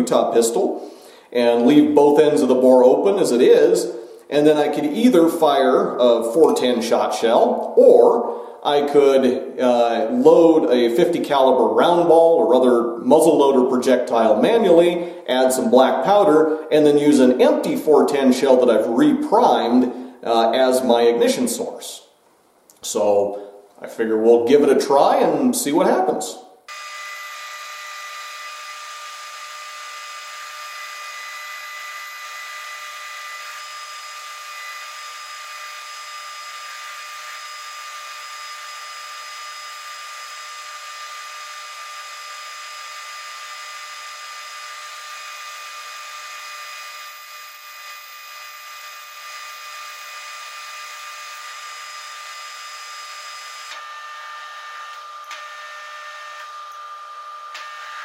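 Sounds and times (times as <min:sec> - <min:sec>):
metal lathe whining: 0:26.7 - 0:58.0.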